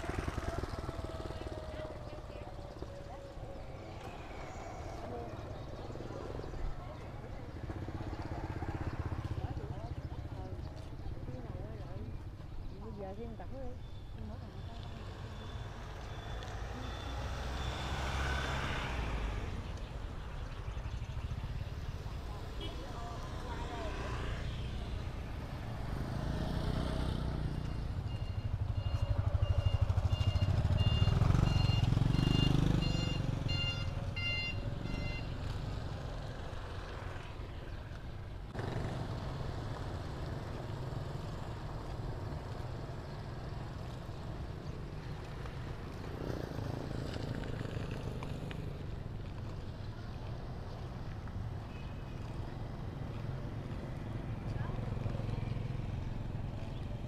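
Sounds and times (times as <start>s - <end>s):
busy street market noise: 0.0s - 57.0s
vehicle engine passing: 15.1s - 19.6s, 28.9s - 33.8s
short electronic beeps: 27.6s - 35.3s.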